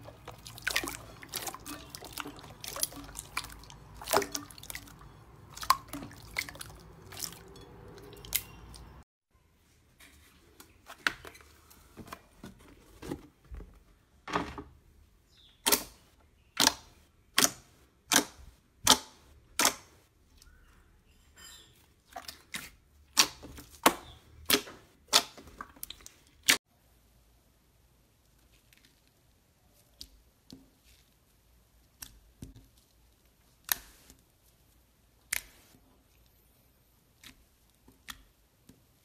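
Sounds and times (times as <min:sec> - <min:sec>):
slime squelching wet clicks: 0:00.1 - 0:09.0, 0:16.6 - 0:20.6.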